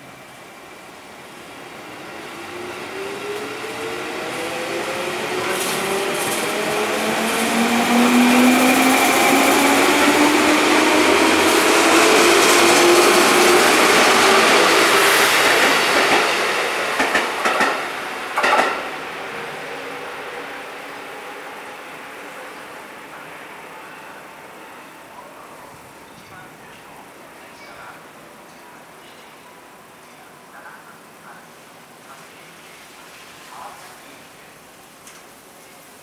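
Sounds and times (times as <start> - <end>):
train wheels clacking: 11.4 - 18.9.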